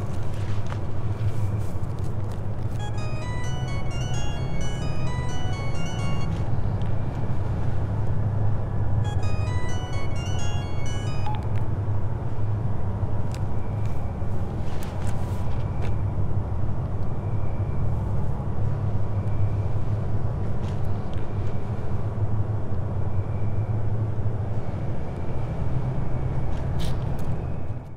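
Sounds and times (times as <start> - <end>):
low soundtrack drone: 2.7 - 7.6, 8.3 - 12.4
high chiming notes: 2.8 - 6.6, 9.0 - 11.6.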